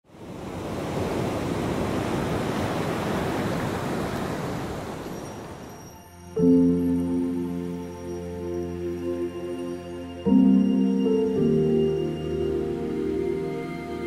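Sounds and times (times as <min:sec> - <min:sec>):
ambient music chord: 0:05.9 - 0:14.0.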